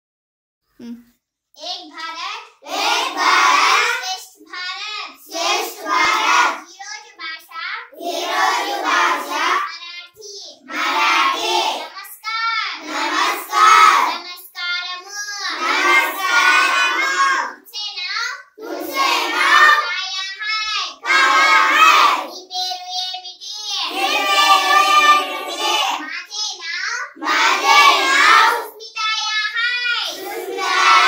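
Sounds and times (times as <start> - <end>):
children chanting together: 2.0 - 6.7, 8.0 - 9.8, 10.6 - 17.6, 18.6 - 22.9, 23.7 - 26.4, 27.1 - 31.0.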